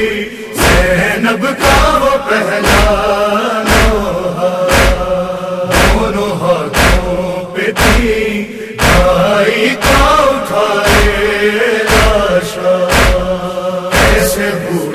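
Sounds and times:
men's chorus chanting: 0:00.0 - 0:14.9
chest-beating slaps: 0:01.6 - 0:14.5.

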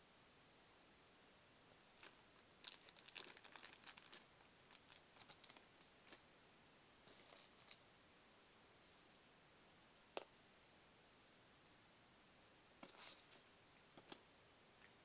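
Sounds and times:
plastic sleeve crinkling: 0:02.0 - 0:06.2, 0:07.0 - 0:07.8.

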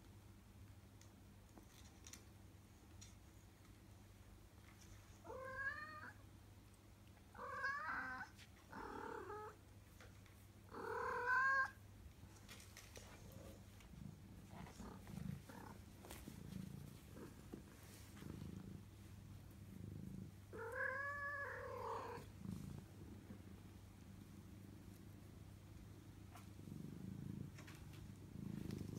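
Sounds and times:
kitten purring: 0:12.4 - 0:28.9.

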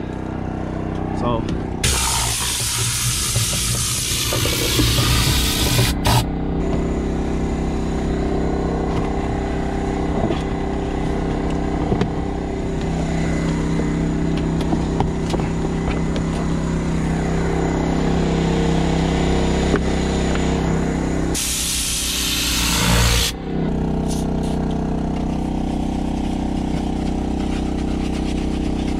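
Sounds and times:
motor humming: 0:00.0 - 0:28.9
compressed air hissing: 0:01.8 - 0:06.3, 0:21.4 - 0:23.3.

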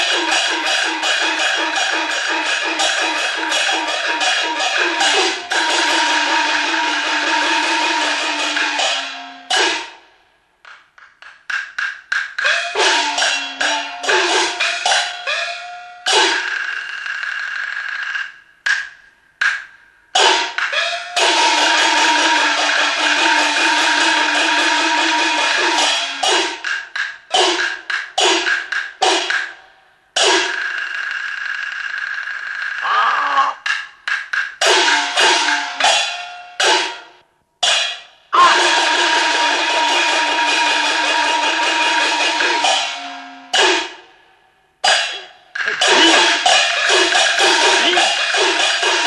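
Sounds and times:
gongs and cymbals crashing: 0:00.0 - 0:10.1, 0:12.4 - 0:17.8, 0:20.2 - 0:26.7, 0:34.6 - 0:44.2, 0:44.8 - 0:49.0
wooden clapper beats: 0:00.0 - 0:16.6, 0:32.8 - 0:44.0, 0:44.8 - 0:49.0.

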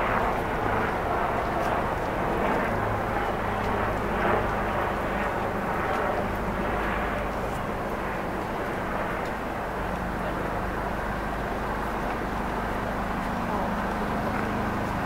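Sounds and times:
distant traffic rumble and hiss: 0:00.0 - 0:15.0.

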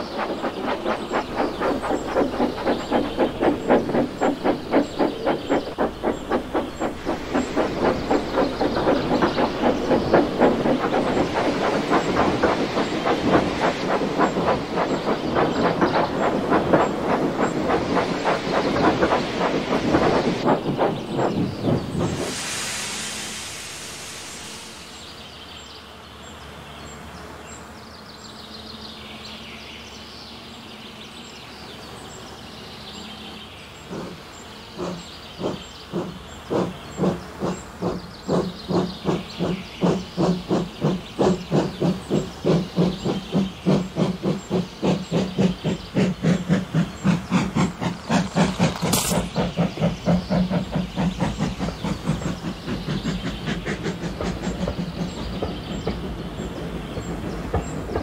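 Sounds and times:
steam locomotive exhaust chuffs: 0:00.0 - 0:25.6, 0:33.8 - 0:58.0
sharp steam burst: 0:00.0 - 0:25.8, 0:37.5 - 0:54.3
steam hissing: 0:00.0 - 0:25.8, 0:33.8 - 0:57.9.

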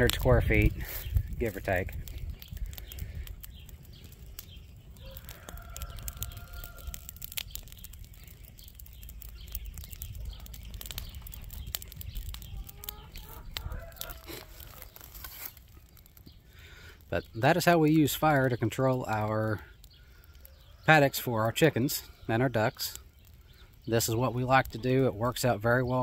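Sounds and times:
grass and brush burning crackling: 0:00.0 - 0:26.0
chickens clucking: 0:12.4 - 0:15.0.

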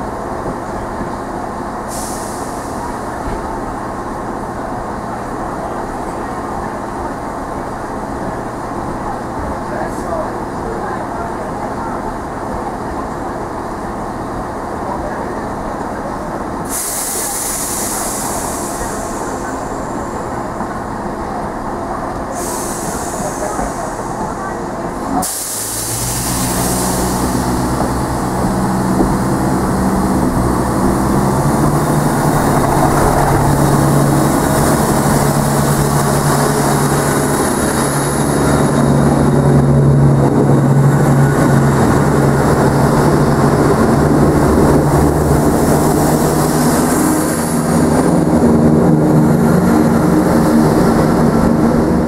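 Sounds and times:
diesel train engines droning: 0:00.0 - 0:52.0.

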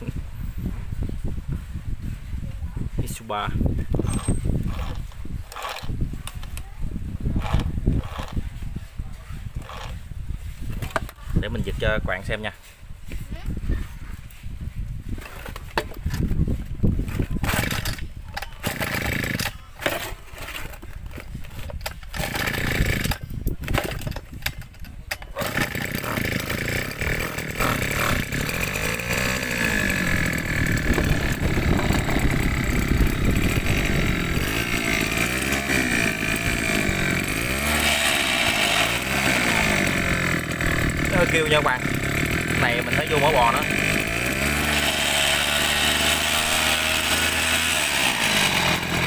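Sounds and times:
recoil starter tugs: 0:03.8 - 0:08.8, 0:09.4 - 0:11.8, 0:14.3 - 0:49.0
noisy gearbox: 0:04.0 - 0:06.6, 0:07.4 - 0:08.4, 0:09.5 - 0:10.0, 0:17.0 - 0:49.0
small engine revving: 0:04.0 - 0:06.6, 0:07.2 - 0:08.7, 0:09.4 - 0:10.1, 0:17.0 - 0:24.2, 0:25.1 - 0:49.0.

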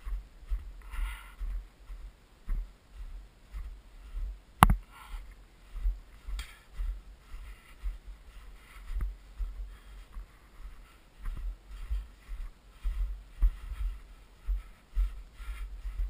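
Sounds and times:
footsteps in snow: 0:00.0 - 0:16.0
sharp click: 0:04.6 - 0:04.8.

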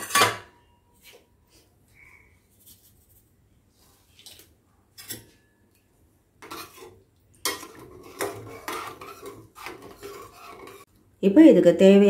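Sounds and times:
metal ladle scraping a pot: 0:06.4 - 0:10.9.

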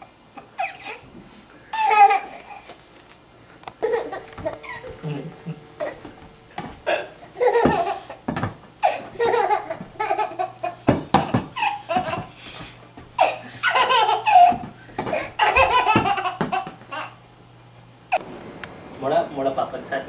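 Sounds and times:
baby laughing: 0:00.6 - 0:01.0, 0:01.7 - 0:02.6, 0:03.8 - 0:06.1, 0:07.4 - 0:08.2, 0:08.8 - 0:12.3, 0:13.2 - 0:17.2.

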